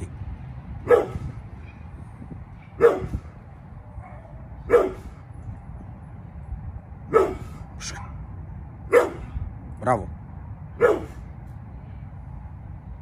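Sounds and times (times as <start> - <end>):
dog barking: 0.8 - 1.8, 2.6 - 3.3, 4.0 - 5.2, 7.1 - 8.2, 8.9 - 9.3, 10.8 - 11.2.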